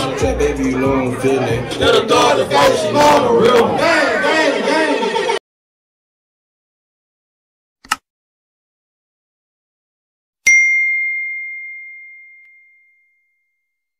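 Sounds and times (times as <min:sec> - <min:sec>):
short click: 0:07.8 - 0:08.0
bright bell ding: 0:10.5 - 0:13.6.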